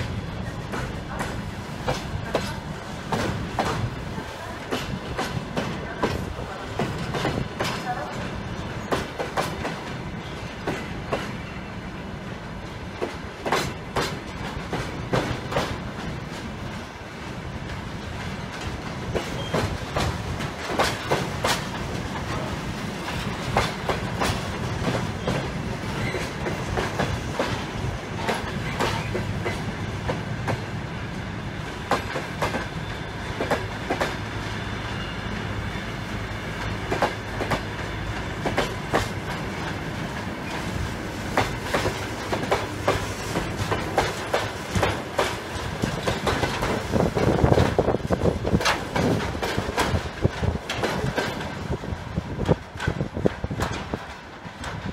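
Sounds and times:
railway wagons rumbling: 0.0 - 54.9
wheels clicking over rail joints: 17.6 - 30.6, 41.3 - 54.9.

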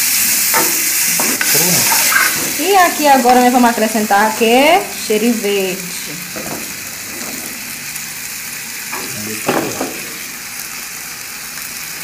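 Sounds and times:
sauce sizzling in a metal pan: 0.0 - 12.0
metal spoon scraping pan: 0.6 - 2.6.

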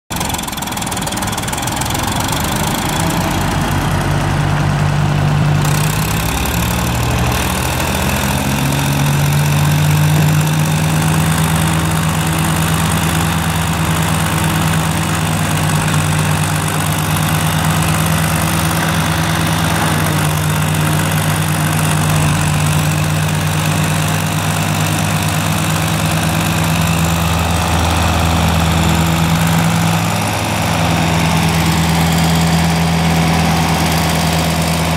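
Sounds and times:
tractor engine running: 0.1 - 34.9
chopper shredding straw: 5.4 - 34.9.

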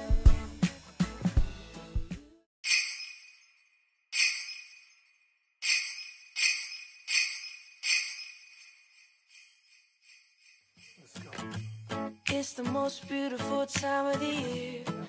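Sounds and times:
sleigh bells shaking: 2.6 - 13.7.

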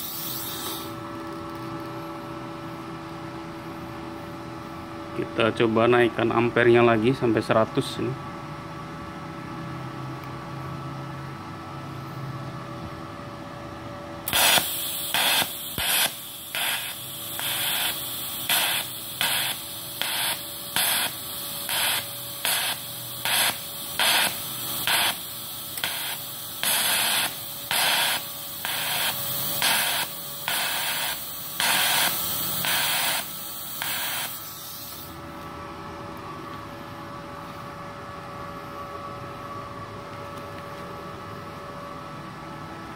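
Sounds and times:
welding arc crackling: 0.0 - 1.4, 14.3 - 35.2
welder machine hum: 0.0 - 5.6, 8.8 - 42.9.

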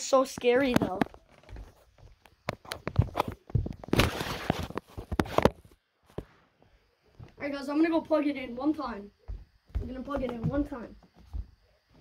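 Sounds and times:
footsteps on floor: 9.2 - 12.0.

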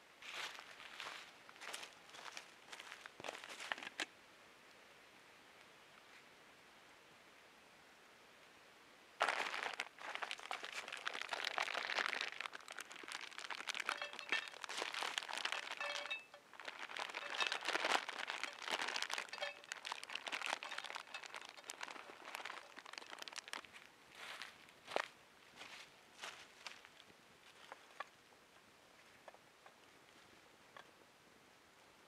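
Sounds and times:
plastic bag crinkling: 9.2 - 23.9.

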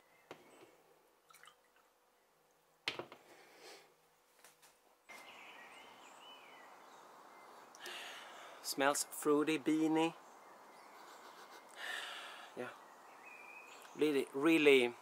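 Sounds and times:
birds chirping: 5.1 - 15.0.

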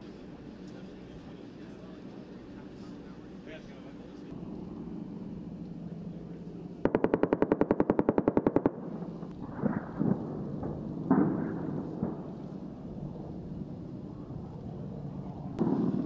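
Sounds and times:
low hum: 0.0 - 16.0
automatic gunfire: 6.8 - 10.3.

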